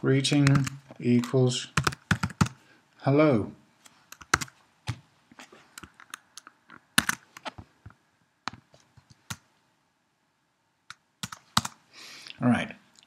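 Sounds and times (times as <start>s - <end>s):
computer keyboard typing: 0.3s - 2.6s, 4.1s - 5.0s, 7.0s - 7.6s, 11.2s - 11.8s.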